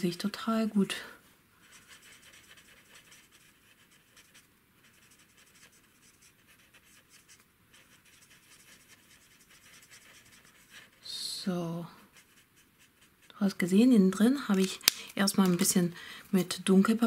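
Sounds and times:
marker scratching on cardstock: 1.6s - 11.0s, 12.1s - 13.6s.

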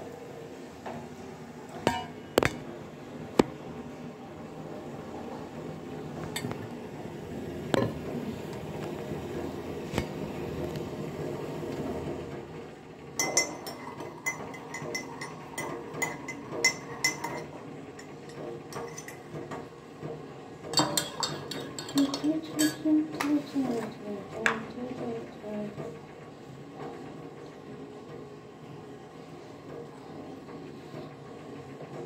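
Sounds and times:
spoon clinking in a ceramic mug: 13.2s - 17.5s.

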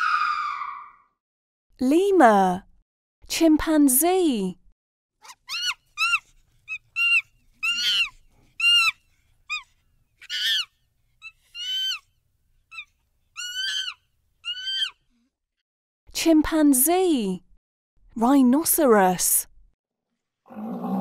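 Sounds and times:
chimpanzee high-pitched cries: 5.2s - 12.1s, 12.7s - 15.0s.

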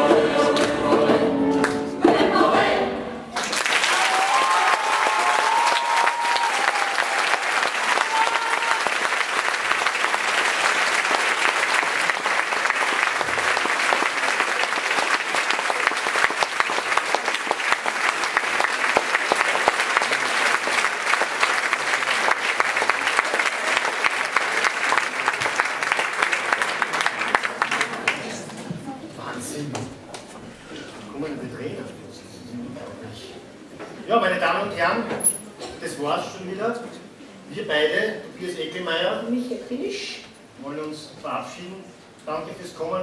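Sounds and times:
crowd applauding: 3.3s - 28.6s.

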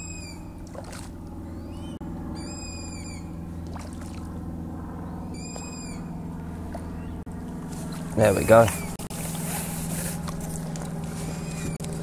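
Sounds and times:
bird calling high note: 0.0s - 0.6s, 1.5s - 3.4s, 5.1s - 6.2s
steady low hum: 0.0s - 12.0s.

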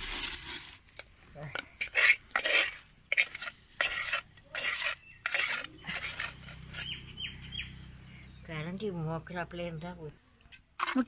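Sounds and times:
ladle scraping clay pot: 0.0s - 7.1s, 10.5s - 11.0s
faint bird chirps: 4.8s - 8.6s.

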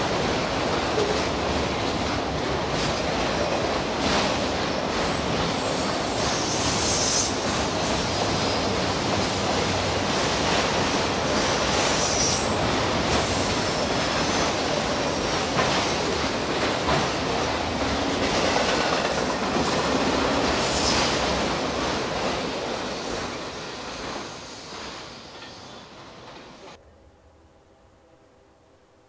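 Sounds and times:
train wheels clattering on rails: 0.0s - 26.8s.

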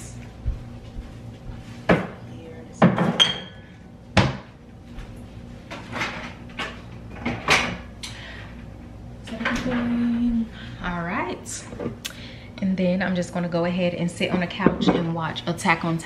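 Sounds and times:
containers and bottles clunking: 14.2s - 15.2s.

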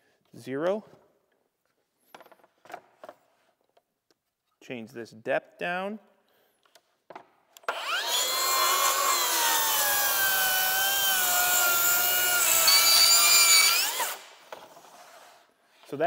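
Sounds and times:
circular saw cutting wood: 7.7s - 15.5s.

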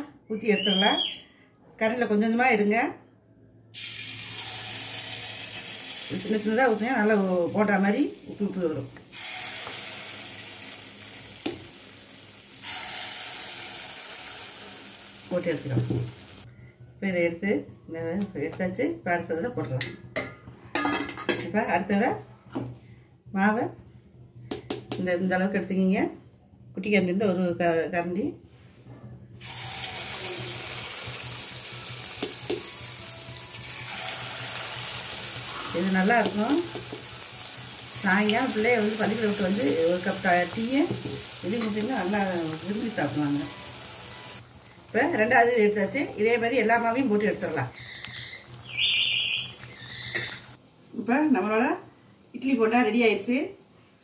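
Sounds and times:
batter sizzling in hot oil: 3.8s - 16.5s, 29.4s - 50.6s.

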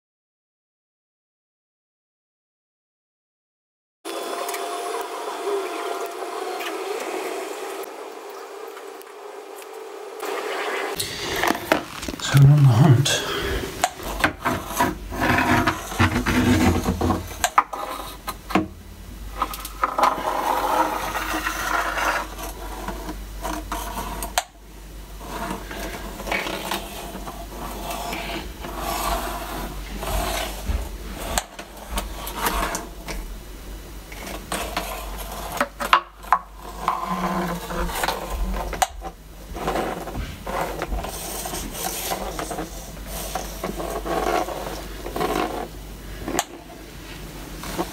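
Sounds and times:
probe rubbing and handling noise: 8.7s - 18.5s, 25.2s - 33.3s, 34.1s - 47.9s.

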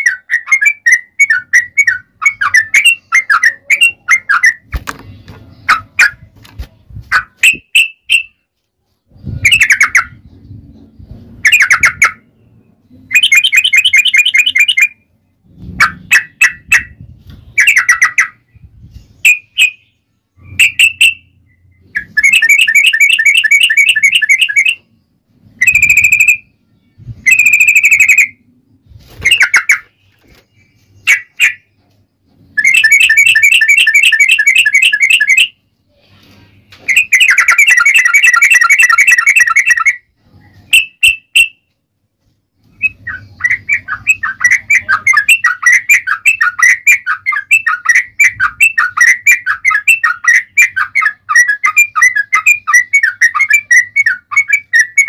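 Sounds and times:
bird singing chattering trills: 9.1s - 35.6s, 42.7s - 55.0s.

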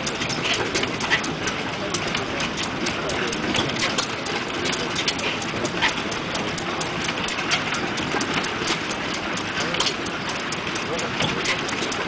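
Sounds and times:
stationary gas engine clattering: 0.0s - 12.0s.

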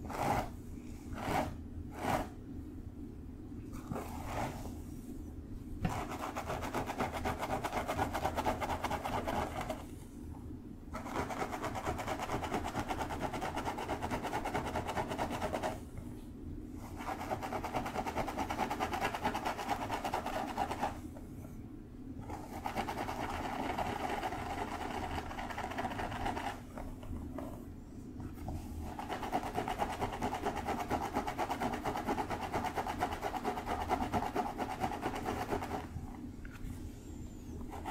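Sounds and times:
fingernails scratching through hair: 0.0s - 2.4s.

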